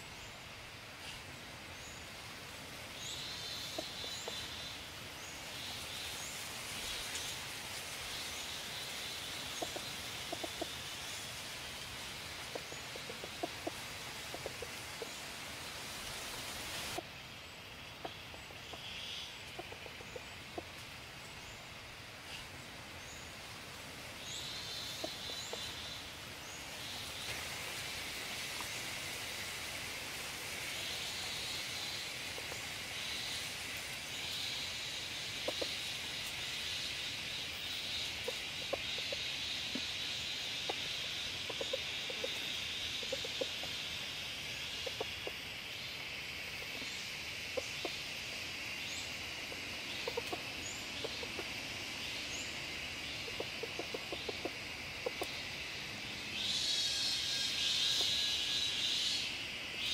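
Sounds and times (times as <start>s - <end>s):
forest insects droning: 0.0s - 59.9s
chicken clucking: 9.4s - 11.1s, 12.5s - 15.2s, 18.0s - 20.8s, 35.4s - 35.8s, 37.9s - 40.0s, 40.6s - 43.8s, 44.8s - 45.4s, 49.8s - 51.6s, 53.0s - 55.4s.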